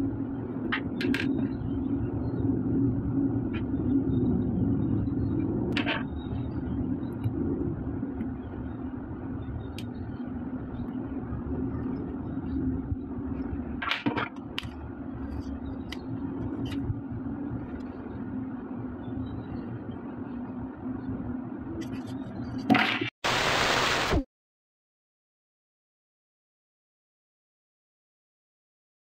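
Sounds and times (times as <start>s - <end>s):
low background rumble and hum: 0.0s - 23.1s
loud hiss burst: 23.2s - 24.3s.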